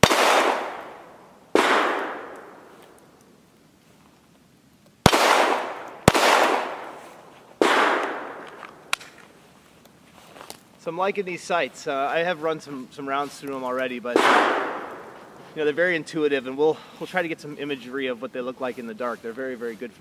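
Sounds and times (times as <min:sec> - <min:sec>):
pistol shots echoing: 0:00.0 - 0:02.7, 0:05.0 - 0:07.0, 0:07.6 - 0:09.1, 0:14.1 - 0:15.2.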